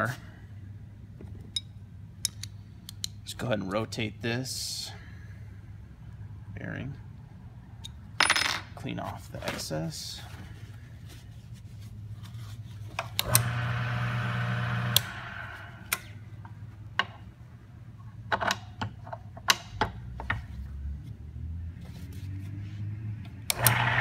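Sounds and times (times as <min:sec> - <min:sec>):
electric motor humming: 0:13.2 - 0:15.9, 0:23.5 - 0:24.0.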